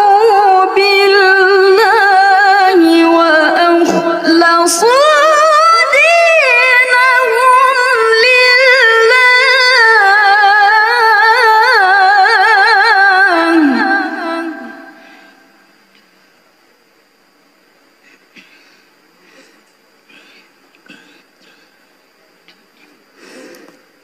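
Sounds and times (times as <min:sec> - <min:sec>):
woman chanting melismatic recitation: 0:00.0 - 0:15.0.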